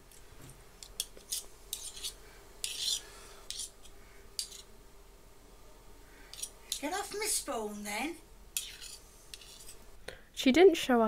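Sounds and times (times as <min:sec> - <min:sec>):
metal spoon scraping a dish: 0:00.8 - 0:04.7, 0:06.3 - 0:06.9, 0:08.6 - 0:09.8.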